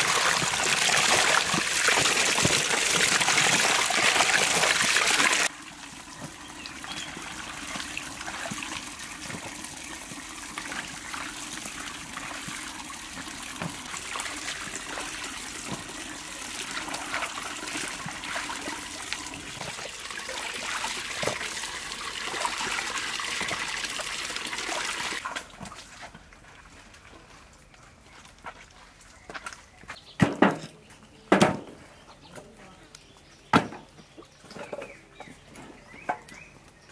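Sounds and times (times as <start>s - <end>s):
tap water pouring into metal basin: 0.0s - 25.6s
water splashing: 0.0s - 25.8s.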